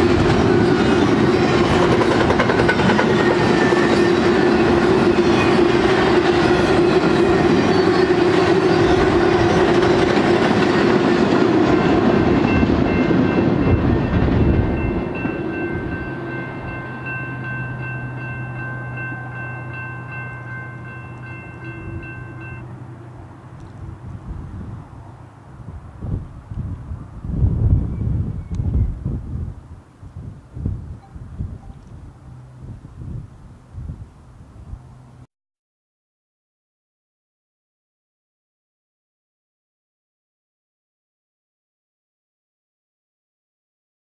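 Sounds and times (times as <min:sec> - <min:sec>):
freight train clattering on rails: 0:00.0 - 0:22.7
distant crossing bell dinging: 0:11.8 - 0:23.2.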